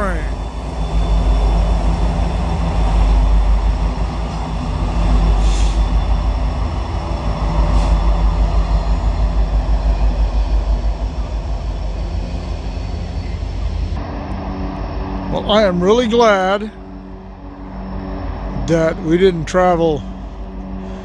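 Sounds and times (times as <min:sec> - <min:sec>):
train wheels on rails: 0:00.0 - 0:16.3
locomotive engine rumble: 0:00.0 - 0:21.0.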